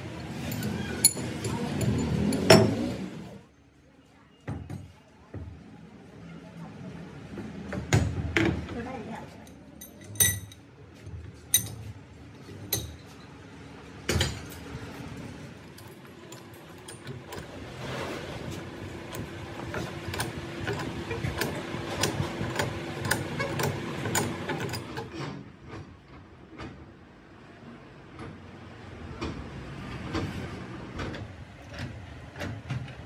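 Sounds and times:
bench vise clanking: 0.2 - 3.1, 9.8 - 10.7, 11.4 - 13.4, 15.7 - 25.9.

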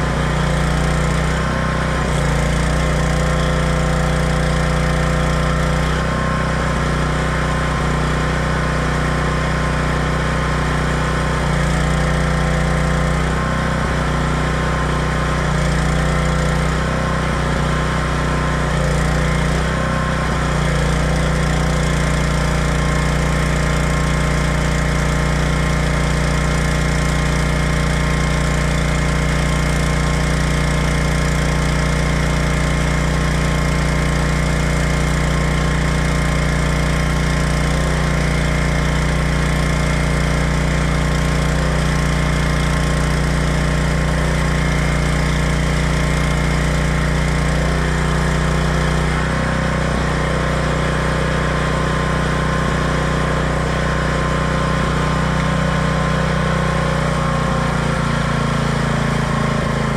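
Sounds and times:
generator engine running: 0.0 - 59.9
welding arc crackling: 0.2 - 5.9.

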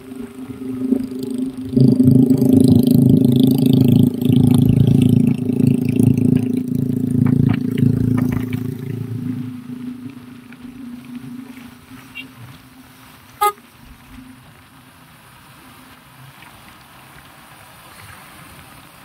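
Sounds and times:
vehicle engine running: 0.0 - 13.6.

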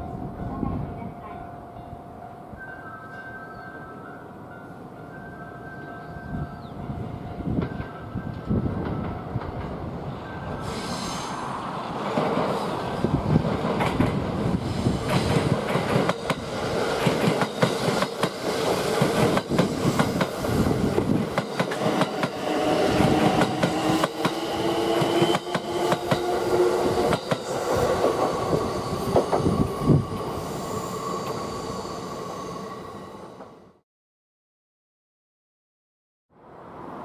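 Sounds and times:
train whining tones: 2.5 - 33.8.

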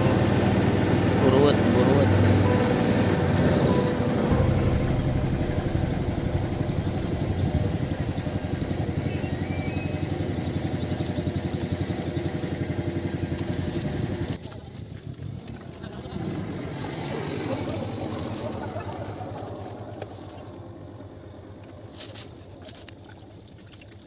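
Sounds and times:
boat engine chugging: 0.0 - 14.7.

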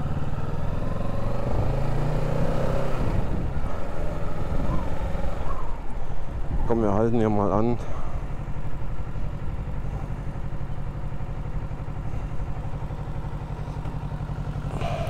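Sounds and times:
motorcycle engine idling: 3.2 - 15.0.

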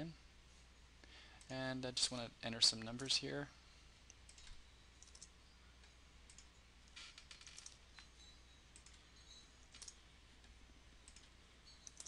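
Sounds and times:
low steady hum: 0.0 - 12.0
keyboard and mouse clicks: 4.1 - 5.3, 6.3 - 8.1, 8.8 - 9.0, 9.7 - 10.0, 11.0 - 12.0.

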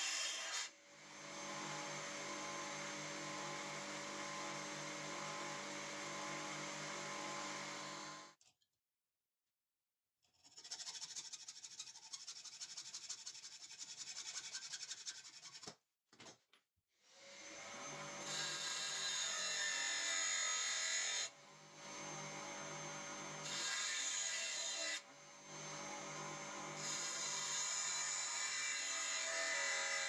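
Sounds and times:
saw cutting steel rod: 0.0 - 8.2, 10.3 - 15.6, 17.2 - 30.0
bench grinder whining: 1.0 - 8.3.

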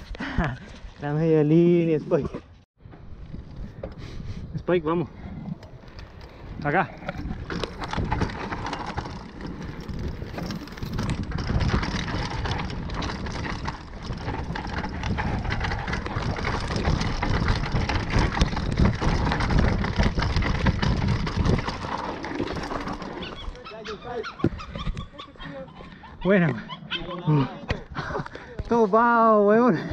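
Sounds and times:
wind buffeting microphone: 2.9 - 28.2
bike rattling over bumps: 5.0 - 28.7
tyres rolling over dirt: 5.6 - 24.7.

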